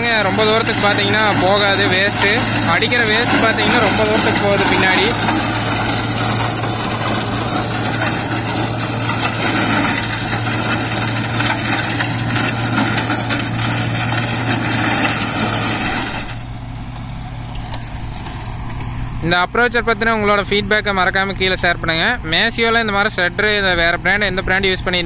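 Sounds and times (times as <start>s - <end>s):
shredder blades chopping: 0.0s - 16.6s
tractor engine drone: 0.0s - 25.0s.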